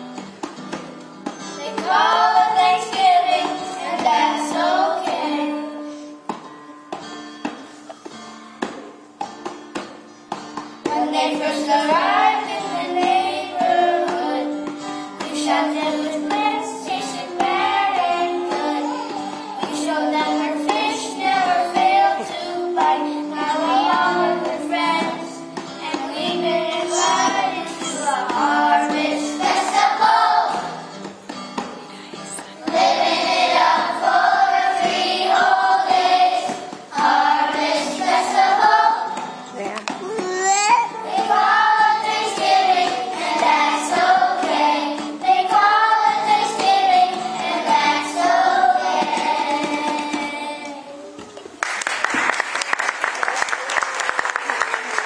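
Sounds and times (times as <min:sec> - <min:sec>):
instrumental accompaniment: 0:00.0 - 0:51.6
children singing in unison: 0:01.6 - 0:06.1, 0:10.9 - 0:30.9, 0:32.5 - 0:39.3, 0:40.5 - 0:51.2.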